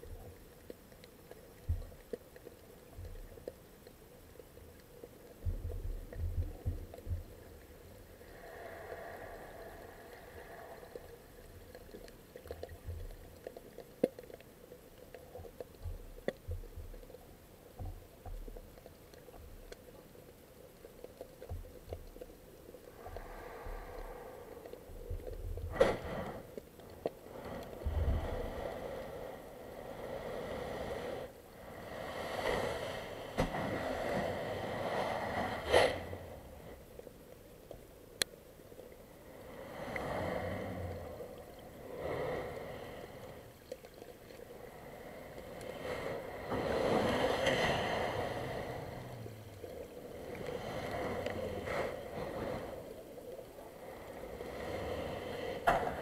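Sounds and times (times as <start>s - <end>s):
muffled underwater ocean surge: 22.9s - 37.3s, 39.0s - 56.0s.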